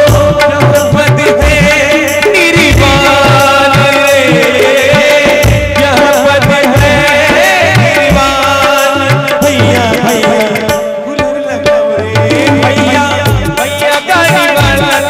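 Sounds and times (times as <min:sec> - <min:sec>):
man singing: 0:00.0 - 0:15.0
tabla strokes: 0:00.0 - 0:15.0.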